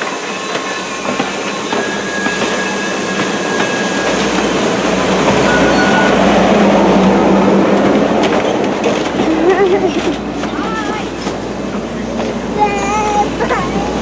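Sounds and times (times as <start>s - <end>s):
train wheels rumbling on rails: 0.0s - 14.0s
thin high squeal: 5.5s - 6.2s.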